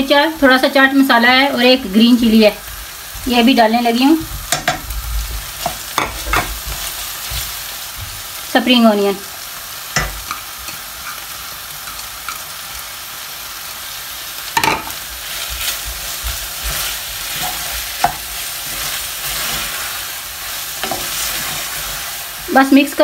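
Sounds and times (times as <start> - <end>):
food sizzling in a pan: 0.0 - 23.0
spatula knocking against pan: 4.5 - 4.8
spatula scraping a pan: 14.7 - 22.2.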